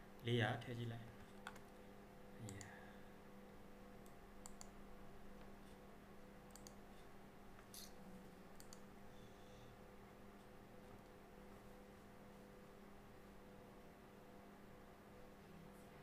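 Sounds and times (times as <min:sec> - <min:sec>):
low steady hum: 0:00.0 - 0:16.0
faint mouse clicks: 0:02.4 - 0:02.8, 0:04.0 - 0:04.8, 0:06.5 - 0:06.8, 0:08.6 - 0:08.9.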